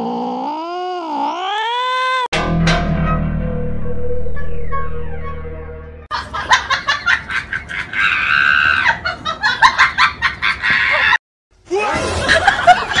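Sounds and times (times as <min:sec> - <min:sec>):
small dog growling and snarling: 0:00.0 - 0:02.3.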